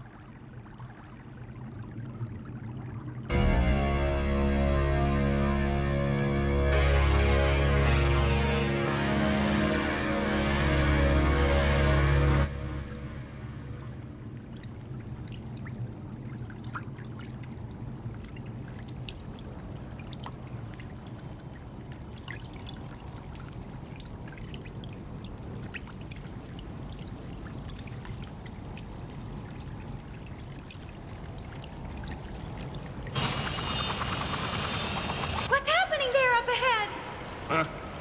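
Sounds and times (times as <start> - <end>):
flowing water: 0.0 - 3.3, 6.7 - 38.0
water drips and trickles: 0.0 - 3.3, 13.2 - 35.5.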